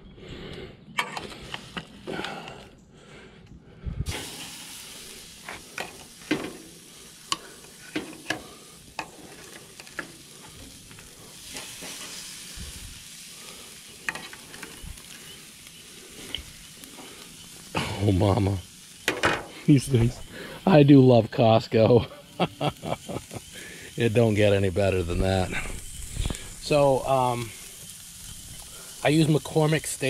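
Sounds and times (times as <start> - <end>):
steaks sizzling on grill: 1.0 - 2.7, 4.1 - 30.0
tongs clicking on grate: 7.3 - 8.4.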